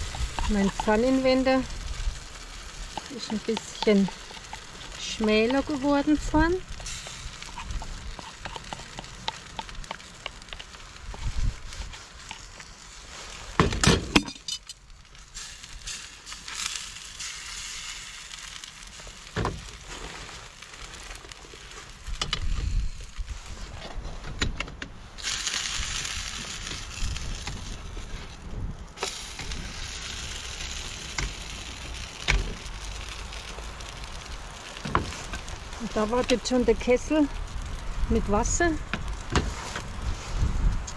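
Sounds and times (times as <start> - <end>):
spirit stove hissing: 0.0 - 13.6, 15.1 - 23.8, 25.0 - 40.9
wind on microphone: 11.0 - 12.0, 22.0 - 24.6, 25.7 - 29.9, 36.4 - 40.9.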